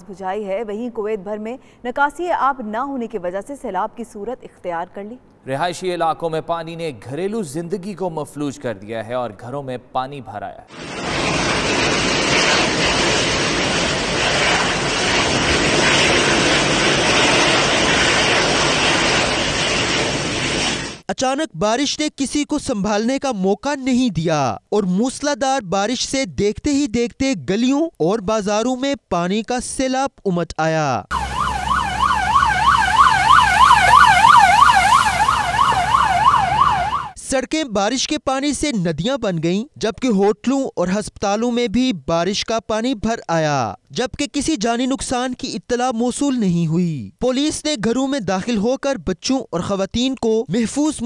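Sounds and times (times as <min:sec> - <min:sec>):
wind: 0:00.0 - 0:21.1, 0:31.0 - 0:51.0
jet engines of taxiing airliner: 0:10.7 - 0:21.0
siren yelping: 0:31.1 - 0:37.2.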